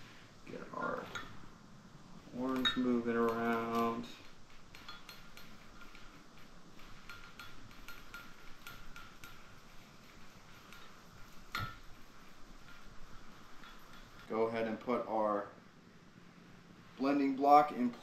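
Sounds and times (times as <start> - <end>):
stick clinking against glass: 2.4 - 4.0.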